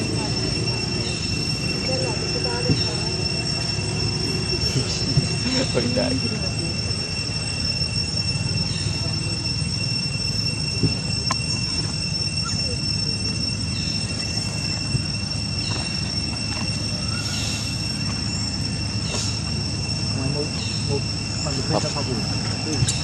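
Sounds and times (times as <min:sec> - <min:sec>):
high-pitched insect drone: 0:00.0 - 0:23.0
low background rumble: 0:00.0 - 0:23.0.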